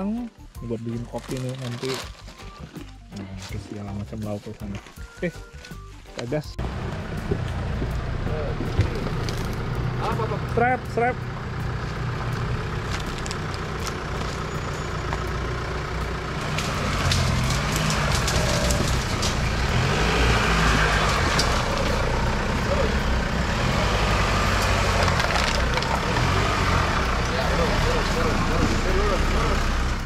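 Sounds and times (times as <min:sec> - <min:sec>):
off-road engine revving under load: 0:06.6 - 0:30.0.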